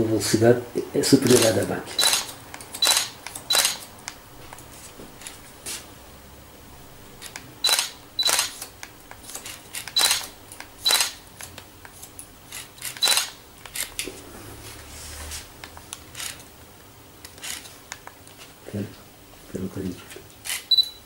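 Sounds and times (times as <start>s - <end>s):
blade and comb clicks: 1.2s - 5.4s, 7.2s - 14.1s
scissors snipping hair: 1.2s - 5.4s.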